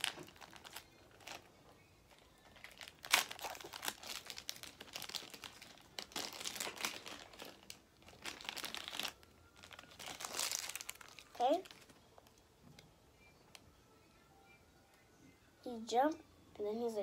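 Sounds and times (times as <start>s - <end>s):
wrapper crinkling: 0.0s - 12.4s.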